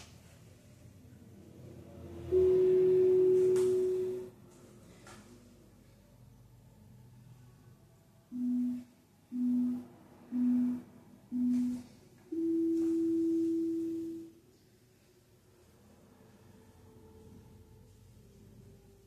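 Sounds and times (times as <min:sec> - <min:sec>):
interval timer beeping: 0:02.3 - 0:04.3, 0:08.3 - 0:14.3.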